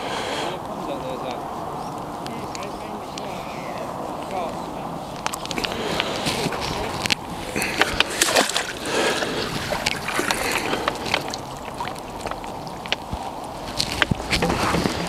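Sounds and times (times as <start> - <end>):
water splashing and sloshing: 3.9 - 15.0.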